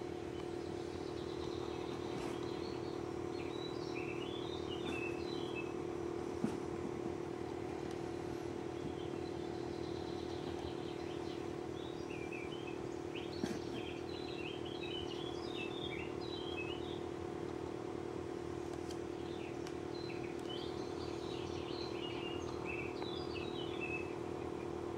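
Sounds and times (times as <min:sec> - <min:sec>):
birds chirping: 0:00.0 - 0:24.9
steady mechanical hum: 0:00.0 - 0:24.9.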